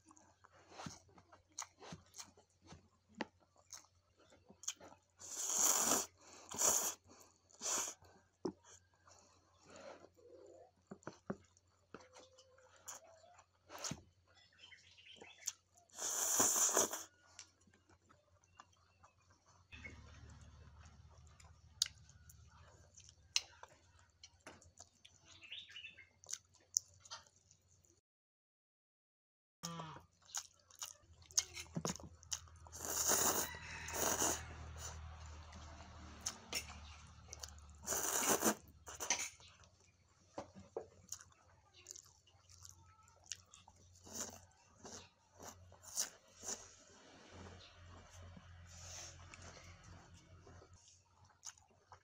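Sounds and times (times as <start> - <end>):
wet chewing: 0.0 - 10.2, 15.2 - 25.4, 26.1 - 27.9, 30.1 - 46.7, 47.9 - 52.0
slurping noodles: 5.2 - 8.0, 15.9 - 17.1, 32.7 - 35.1, 37.8 - 39.4, 44.0 - 47.0.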